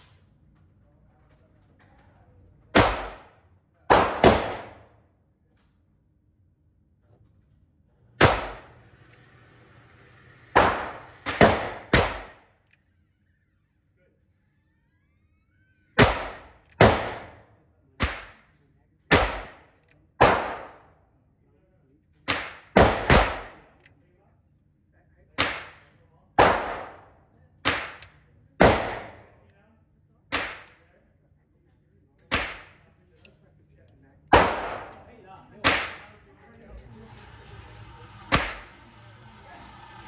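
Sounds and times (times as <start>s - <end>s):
revolver shots echoing indoors: 2.6s - 6.3s, 8.0s - 12.9s, 15.8s - 21.2s, 22.1s - 24.0s, 25.3s - 29.5s, 30.2s - 31.0s, 32.1s - 40.0s.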